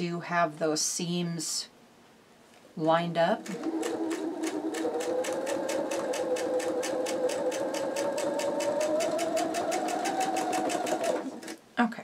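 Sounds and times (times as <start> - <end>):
sewing machine stitching: 3.4 - 11.6.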